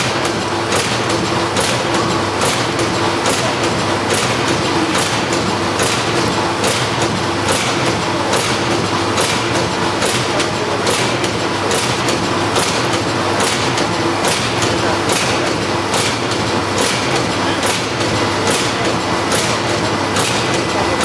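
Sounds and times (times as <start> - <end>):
machine clattering: 0.0 - 21.0
sharp machine clicks: 0.0 - 21.0.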